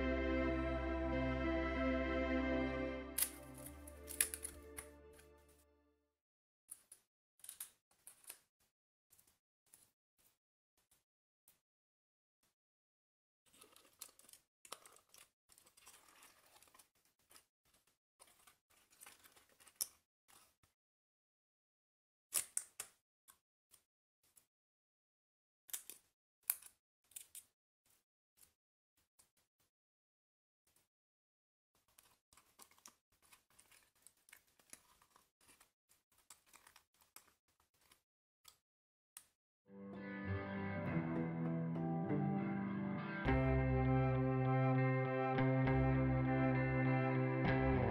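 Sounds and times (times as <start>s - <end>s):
paper pieces rustling and clicking: 3.2s - 4.9s, 13.5s - 20.6s, 31.8s - 38.0s.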